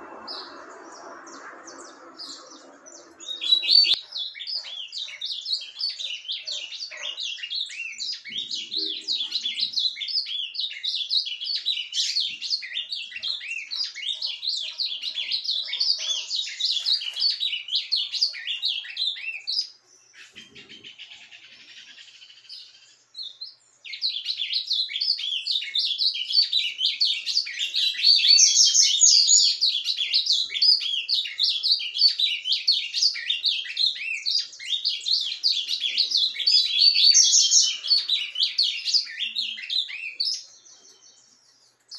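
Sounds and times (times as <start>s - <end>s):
bird twittering warble: 0.0s - 23.4s.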